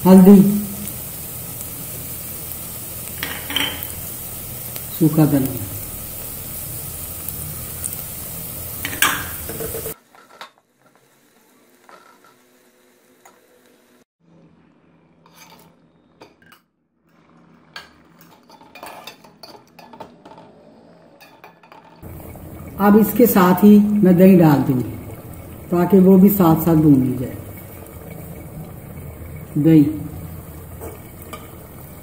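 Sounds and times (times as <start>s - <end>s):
masala sizzling in hot oil: 0.0s - 14.1s, 22.0s - 32.0s
metal turner scraping pot: 15.2s - 15.8s, 30.4s - 32.0s.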